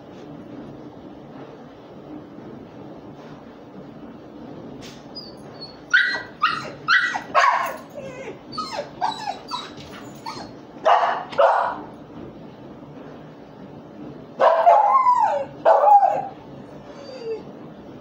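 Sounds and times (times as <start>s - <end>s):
dog barking: 5.9s - 7.9s, 10.8s - 11.9s, 14.4s - 16.3s.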